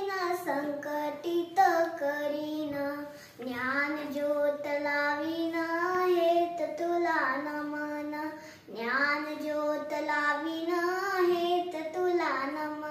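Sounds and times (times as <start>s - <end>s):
girl singing unaccompanied: 0.0s - 12.9s.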